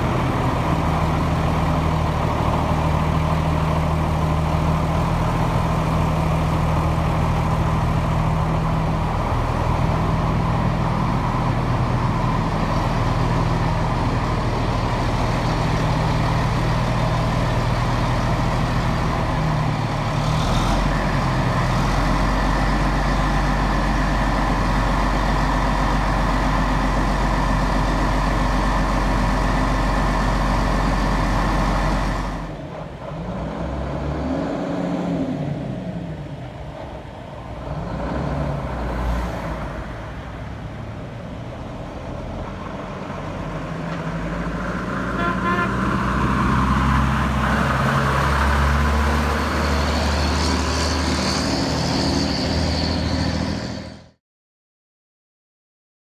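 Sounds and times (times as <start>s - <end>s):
cars passing: 0.0s - 23.6s, 32.3s - 54.1s
diesel truck engine idling: 0.0s - 33.5s
truck driving past: 0.0s - 54.2s.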